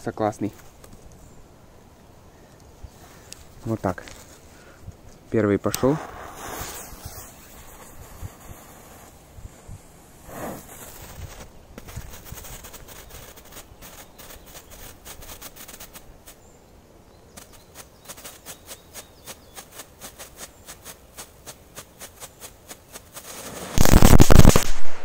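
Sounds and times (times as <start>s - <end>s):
firecracker fuse ticking: 5.0s - 16.4s, 17.4s - 25.0s
firecracker bangs: 5.8s - 8.4s, 23.2s - 25.0s.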